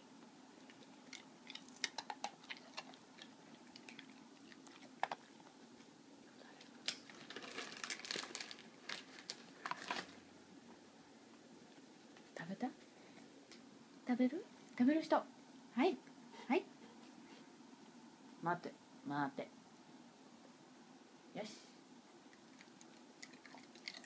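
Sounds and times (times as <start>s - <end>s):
dog crunching a cookie: 0.6s - 5.6s, 22.3s - 24.0s.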